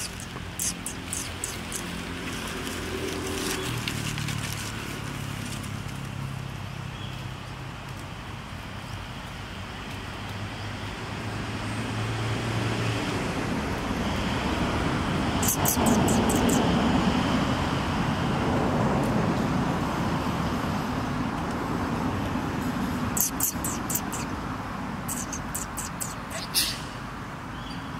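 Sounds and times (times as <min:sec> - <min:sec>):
high chirps: 0:00.0 - 0:02.0, 0:15.4 - 0:16.7, 0:23.2 - 0:24.3, 0:25.0 - 0:27.0
motor vehicle passing: 0:00.0 - 0:06.9, 0:10.6 - 0:27.2.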